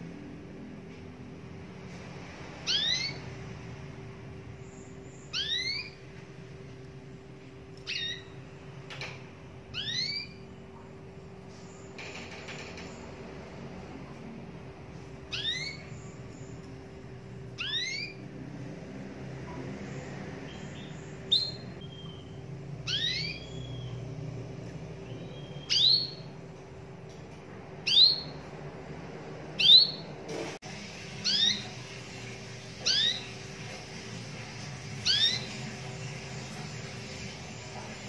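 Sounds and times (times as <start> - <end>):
canary call notes: 2.6 - 3.3, 5.2 - 6.0, 9.7 - 10.5, 17.6 - 18.2, 20.5 - 24.0, 32.7 - 33.6, 35.0 - 36.2.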